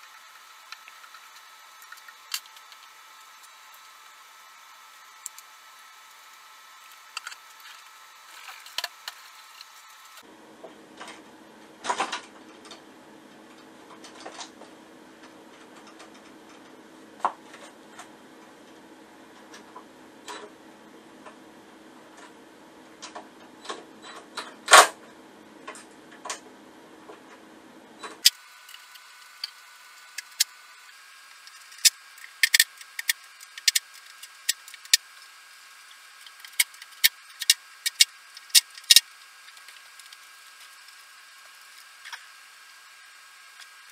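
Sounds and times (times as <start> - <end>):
faint steady hum: 0.0 - 43.9
small tools clicking and tapping: 31.3 - 35.1, 36.2 - 42.3.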